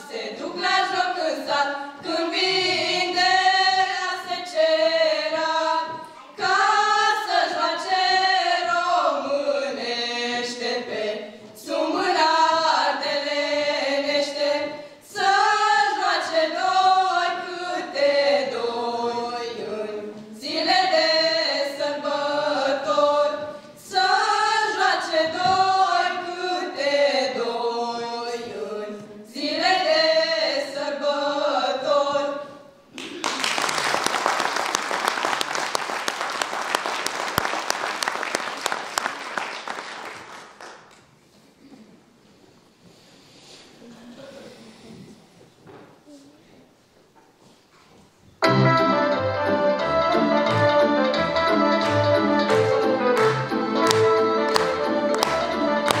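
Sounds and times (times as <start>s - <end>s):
women singing a cappella: 0.0s - 32.8s.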